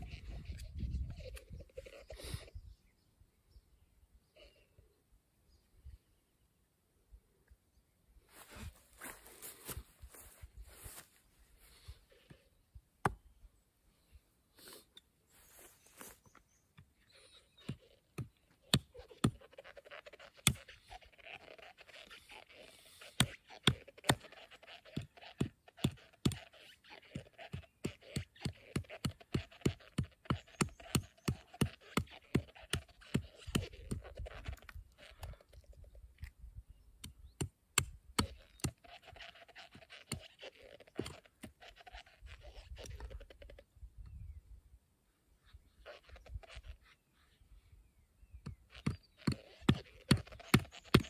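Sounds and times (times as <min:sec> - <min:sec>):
hatchet scraping wood: 0:16.8 - 0:35.6, 0:37.4 - 0:43.6, 0:48.4 - 0:51.0.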